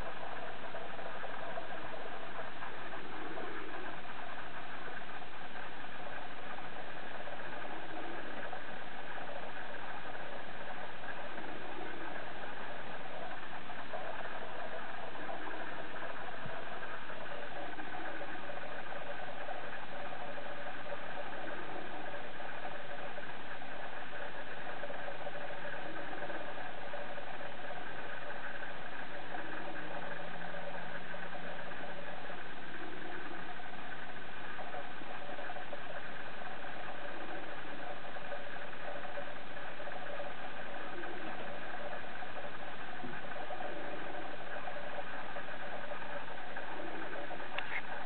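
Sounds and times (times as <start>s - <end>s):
faint steady tones: 0.0s - 48.0s
steady mechanical hum: 0.0s - 48.0s.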